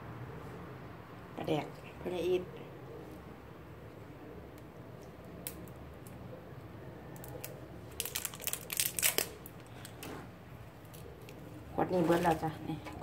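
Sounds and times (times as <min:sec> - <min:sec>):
plastic wrapping crinkling: 0:07.2 - 0:10.0.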